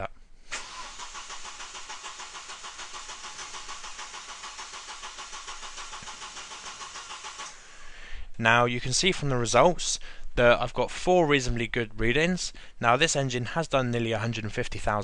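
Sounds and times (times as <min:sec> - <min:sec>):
car engine cranking without firing: 0:00.5 - 0:07.6.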